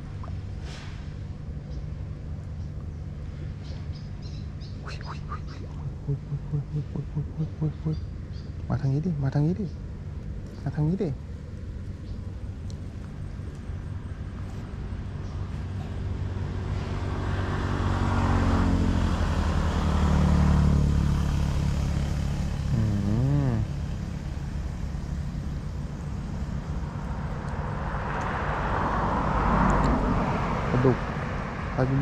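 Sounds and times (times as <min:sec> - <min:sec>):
vehicle engine passing by: 0:13.2 - 0:32.0.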